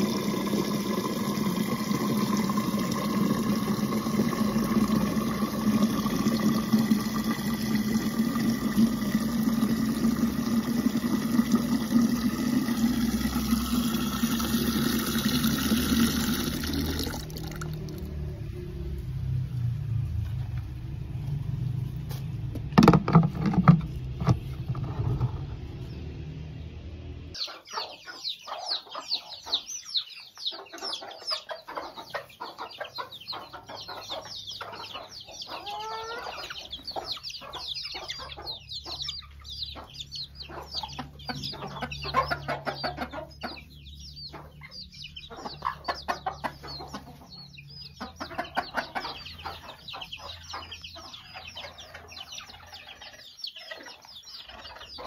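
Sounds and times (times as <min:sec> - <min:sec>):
hens clucking: 0:00.0 - 0:18.0, 0:27.3 - 0:55.0
low rumble: 0:17.3 - 0:22.5
chicks peeping: 0:23.9 - 0:55.0.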